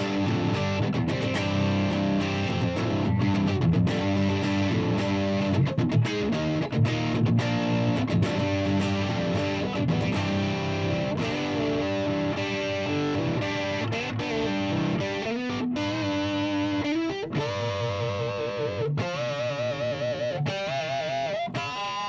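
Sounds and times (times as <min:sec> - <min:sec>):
electric guitar through an amp: 0:00.0 - 0:22.0.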